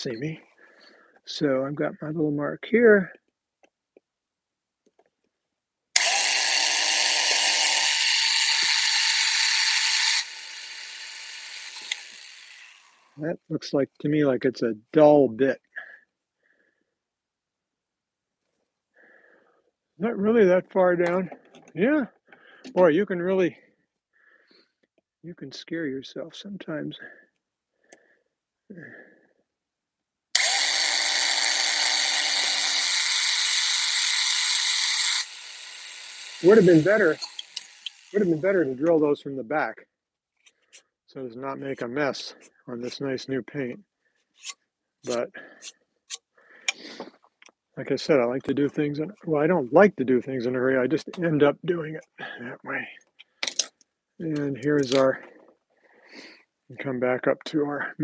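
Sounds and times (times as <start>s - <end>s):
power drill boring into wood: 6.0s - 13.2s, 30.3s - 38.7s.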